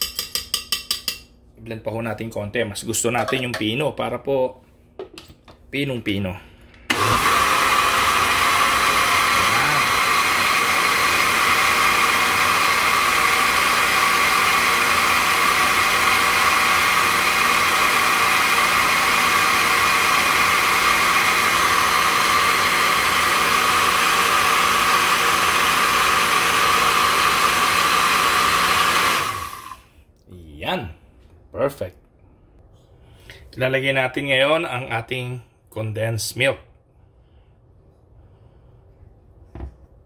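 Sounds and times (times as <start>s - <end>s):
blender running: 6.9s - 29.9s.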